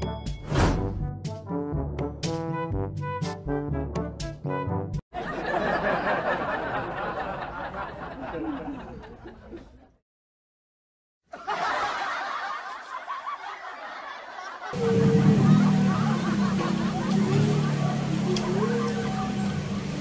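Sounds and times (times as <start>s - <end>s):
group of people laughing: 5.2s - 10.0s, 11.3s - 19.2s.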